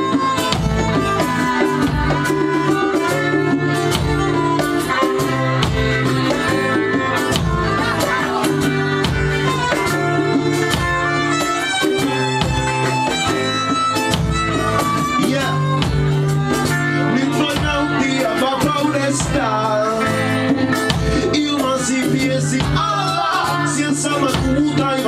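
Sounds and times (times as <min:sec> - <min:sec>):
fiddle playing: 0:00.0 - 0:25.0
steady beat: 0:00.0 - 0:25.0
strummed acoustic guitar: 0:00.0 - 0:25.0.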